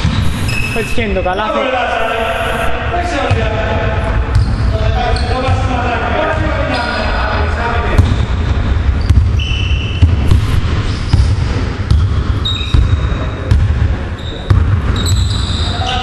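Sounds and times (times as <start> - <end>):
short high squeaks: 0.1 - 1.1
basketball bouncing on hardwood: 10.0 - 13.8.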